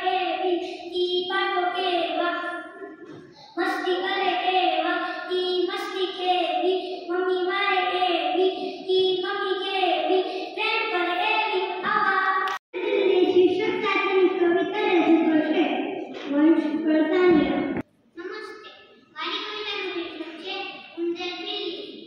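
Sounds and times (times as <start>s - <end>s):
boy chanting a poem: 0.0s - 15.7s
girl's voice: 0.0s - 22.0s.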